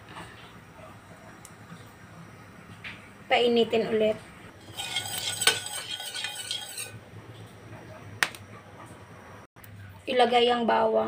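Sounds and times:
metal ladle scraping a pan: 4.5 - 7.1.

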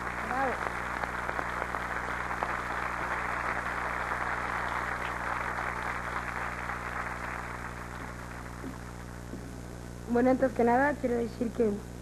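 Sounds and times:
audience applauding: 0.0 - 9.1
low mains hum: 0.0 - 12.0.

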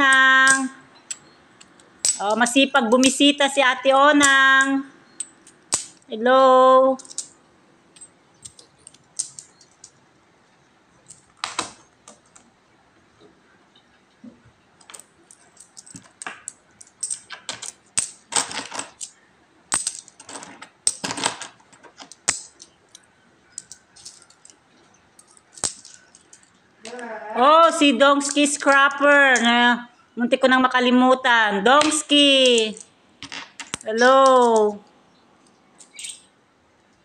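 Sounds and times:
coins clinking: 0.0 - 3.2, 4.2 - 6.1, 7.0 - 10.0, 14.8 - 26.6.

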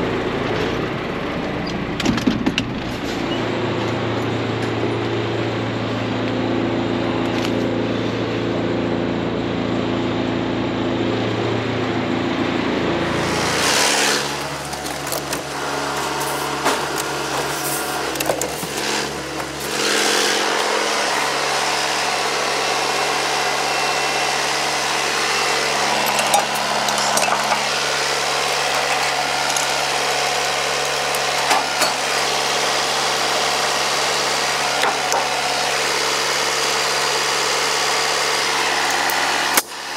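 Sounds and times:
tractor diesel engine running: 0.0 - 39.9
knocks and clatter: 1.7 - 4.8.

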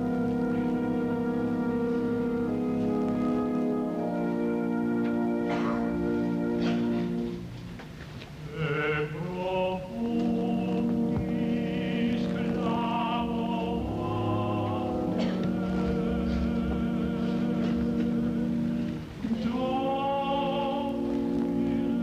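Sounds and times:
orchestra playing sustained chords: 0.0 - 22.0
person singing with vibrato: 8.4 - 22.0.

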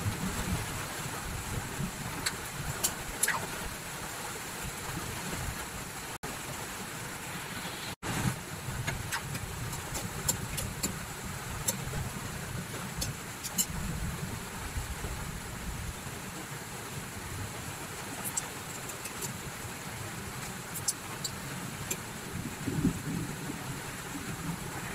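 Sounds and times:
broth simmering with ticks and pops: 0.0 - 3.6, 8.6 - 14.3, 17.9 - 24.9.

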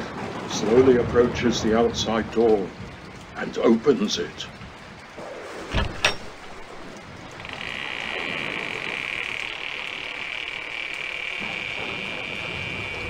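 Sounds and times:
door latch clunking open: 5.7 - 6.8
door hinges creaking: 5.7 - 13.0.

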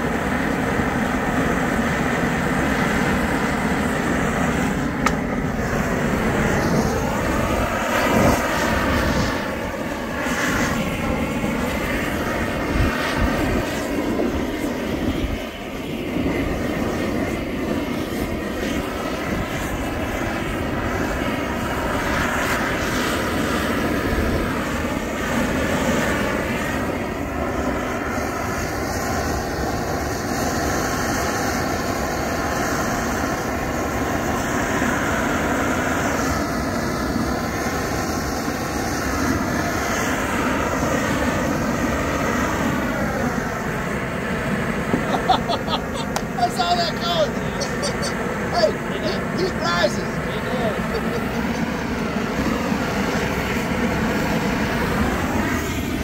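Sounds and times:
propane torch roaring: 0.0 - 56.0.

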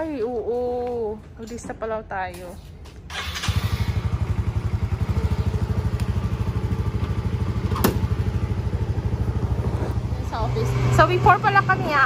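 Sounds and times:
motorcycle engine idling: 3.1 - 12.0.

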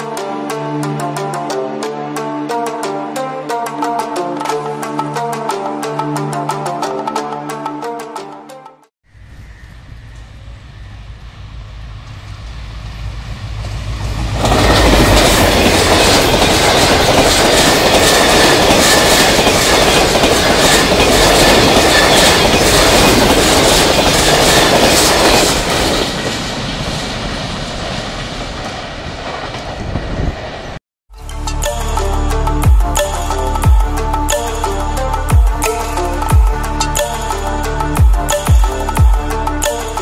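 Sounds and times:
passenger train passing: 9.2 - 40.0.

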